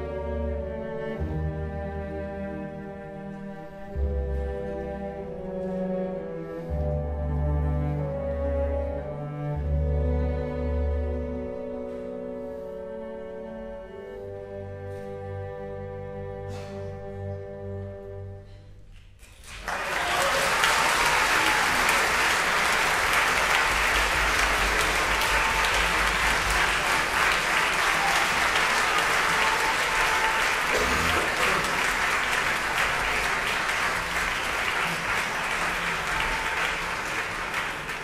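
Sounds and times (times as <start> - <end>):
audience applause: 19.2 - 38.0.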